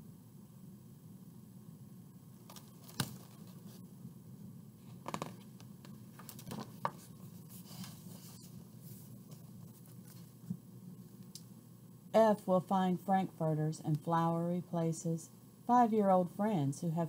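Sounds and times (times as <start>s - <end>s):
book pages turning: 2.5s - 3.8s, 4.8s - 10.5s
paper rustling and tapping: 5.0s - 7.1s.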